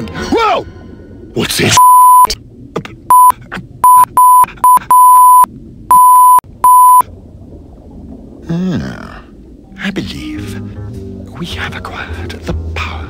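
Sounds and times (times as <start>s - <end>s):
censor bleep: 1.8s - 2.3s, 3.1s - 7.1s.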